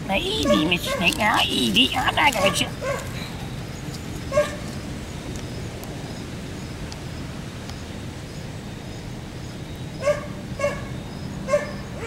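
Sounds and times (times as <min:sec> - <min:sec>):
outdoor background noise: 0:00.0 - 0:12.0
faint ticks and rustles: 0:00.3 - 0:06.0.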